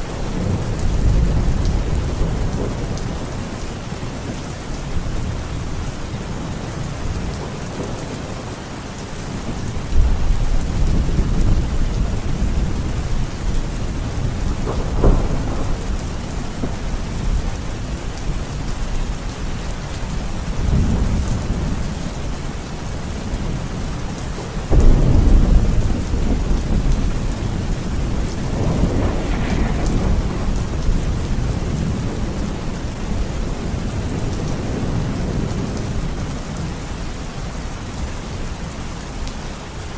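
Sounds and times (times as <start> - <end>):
thunder rumbling: 0.0 - 4.2, 9.3 - 36.8
heavy rain: 0.0 - 39.9.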